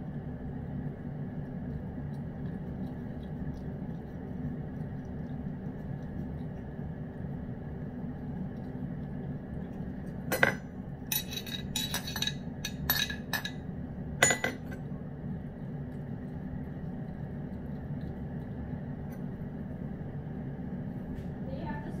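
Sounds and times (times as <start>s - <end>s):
low background hum: 0.0s - 22.0s
metal utensil clinking: 10.3s - 13.6s.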